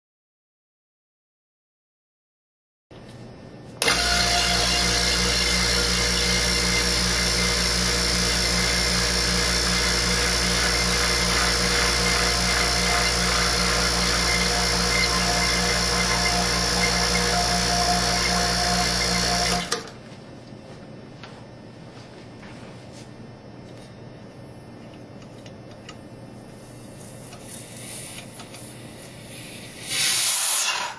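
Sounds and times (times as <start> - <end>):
vacuum pump humming: 3.8 - 20.0.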